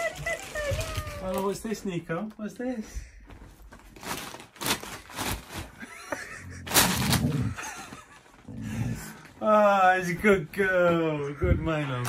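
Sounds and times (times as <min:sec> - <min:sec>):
wrapping paper crinkling: 0:00.0 - 0:01.9, 0:03.6 - 0:06.0
dog grumbling: 0:06.2 - 0:07.7, 0:08.4 - 0:09.3.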